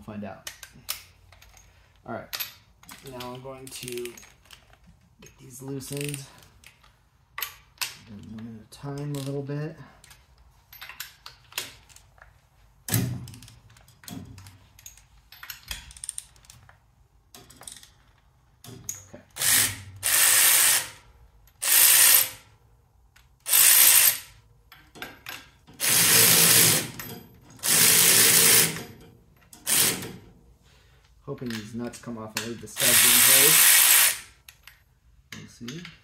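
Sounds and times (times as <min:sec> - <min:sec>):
electric ratchet spinning: 0:19.4 - 0:21.0, 0:21.6 - 0:22.4, 0:23.4 - 0:24.4, 0:25.8 - 0:27.0, 0:27.6 - 0:29.0, 0:29.6 - 0:30.2, 0:32.8 - 0:34.4.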